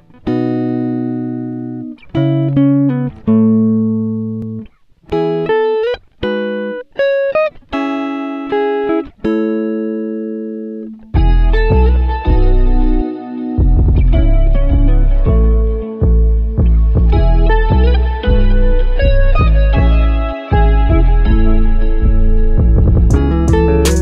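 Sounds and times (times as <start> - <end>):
plucked guitar-like notes: 0.0 - 24.0
deep bass: 11.2 - 13.0, 13.6 - 24.0.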